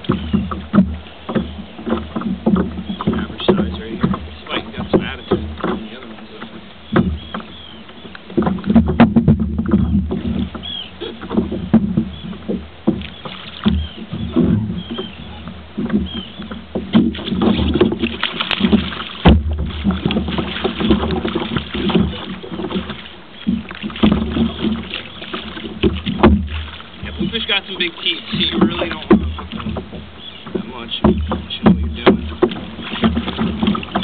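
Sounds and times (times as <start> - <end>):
knocks and clatter of gear: 0.0 - 34.0.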